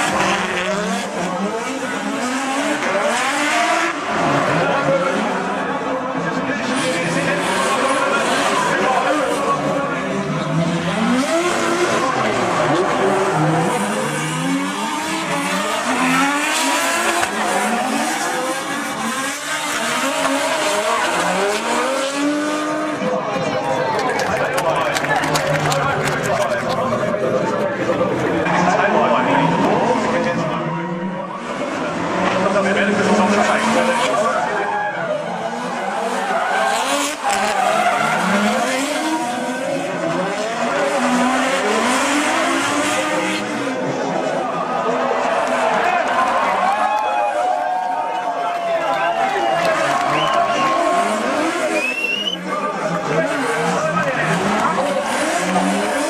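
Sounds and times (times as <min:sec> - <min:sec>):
car engines revving hard: 0:00.0 - 0:23.5, 0:24.1 - 0:56.0.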